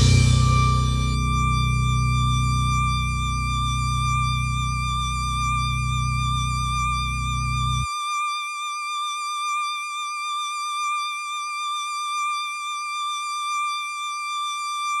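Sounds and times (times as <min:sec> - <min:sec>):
high synthesizer lead note: 0:00.0 - 0:07.9
lower synthesizer chord: 0:00.0 - 0:07.9.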